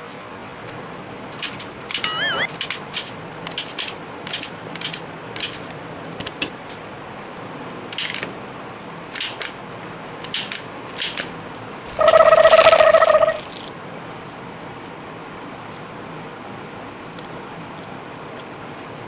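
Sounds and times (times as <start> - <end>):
toy gun plastic clicks: 1.4 - 5.7, 9.2 - 9.6, 10.2 - 11.4, 13.4 - 13.7
warbling electronic tone: 2.0 - 2.6, 11.9 - 13.7.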